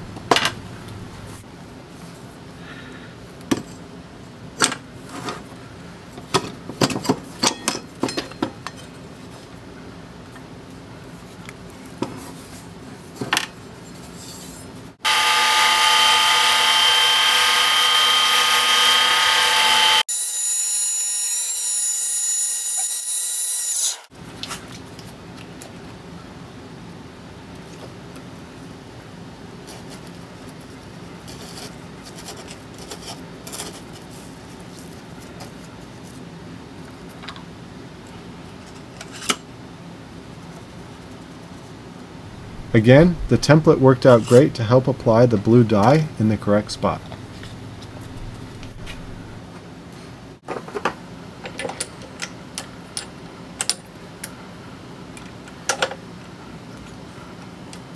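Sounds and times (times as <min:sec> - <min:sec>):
low hum: 0:00.0 - 0:01.4, 0:42.2 - 0:49.4
power tool whining: 0:15.0 - 0:20.0.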